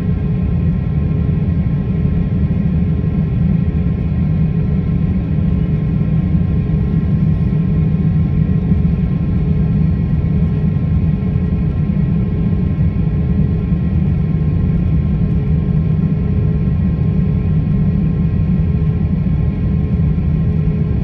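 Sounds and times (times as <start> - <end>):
airliner cabin rumble: 0.0 - 21.0.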